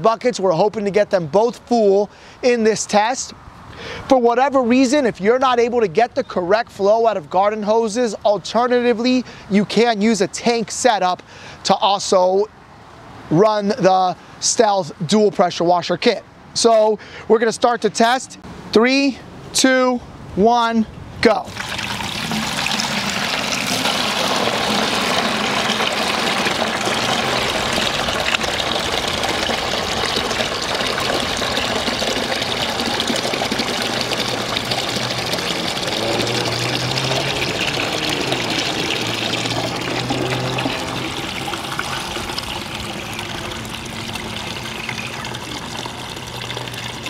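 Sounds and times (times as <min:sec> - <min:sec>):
water pouring into plastic buckets: 0:21.4 - 0:47.0.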